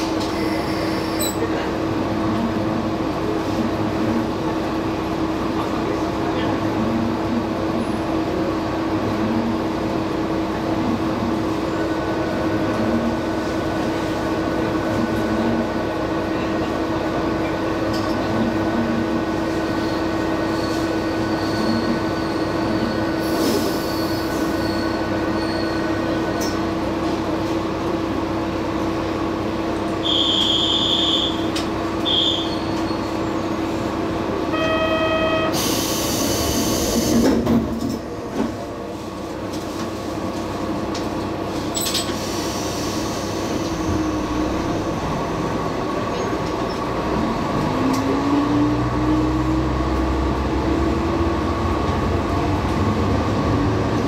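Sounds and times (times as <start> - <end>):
faint high squeal of railcar: 0.0 - 1.7, 19.4 - 26.7, 29.8 - 38.5, 41.5 - 45.4, 46.0 - 46.9
short buzzer tone: 30.0 - 31.4, 34.5 - 35.7
compressed-air hiss: 35.6 - 37.2.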